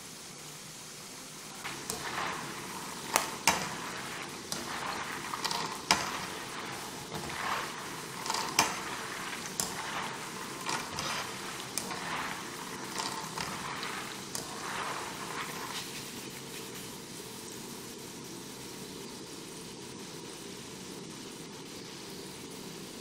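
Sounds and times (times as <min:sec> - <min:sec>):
peanuts sizzling in hot oil: 0:00.0 - 0:23.0
strainer scraping a pan: 0:01.6 - 0:17.0.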